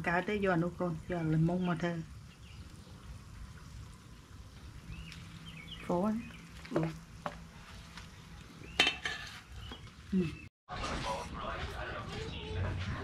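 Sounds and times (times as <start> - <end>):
hot oil sizzling: 0.0 - 10.1.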